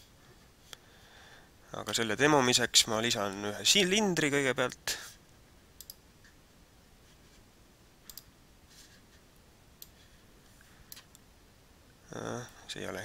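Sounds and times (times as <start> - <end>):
computer mouse clicks: 5.8 - 6.0, 8.1 - 8.3.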